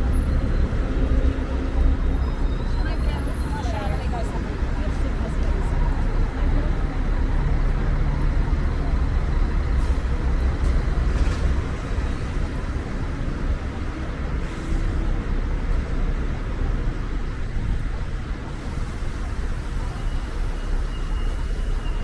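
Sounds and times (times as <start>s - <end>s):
traffic rumble: 0.0s - 22.0s.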